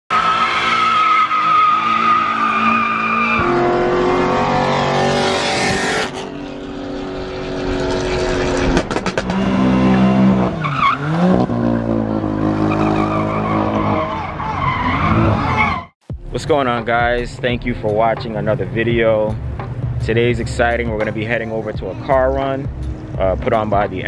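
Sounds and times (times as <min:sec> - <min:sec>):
car engines revving: 0:00.1 - 0:15.9, 0:18.1 - 0:24.0
tires squealing: 0:00.1 - 0:15.9.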